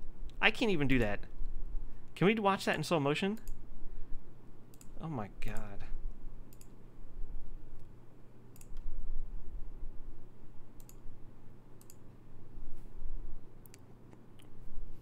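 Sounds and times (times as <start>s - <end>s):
low steady hum: 0.0s - 15.0s
computer mouse clicks: 3.4s - 3.6s, 4.7s - 5.7s, 6.5s - 6.8s, 8.5s - 8.9s, 10.8s - 11.0s, 11.8s - 12.0s, 13.6s - 14.6s.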